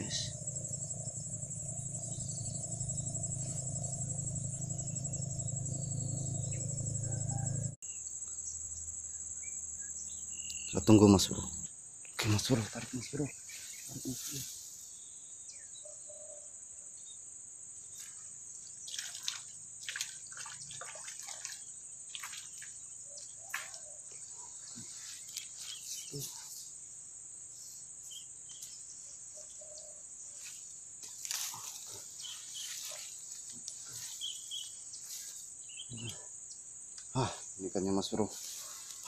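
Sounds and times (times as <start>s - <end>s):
insect chirring: 0.0s - 39.0s
rustling and splashing in water: 17.9s - 24.1s, 24.8s - 26.0s.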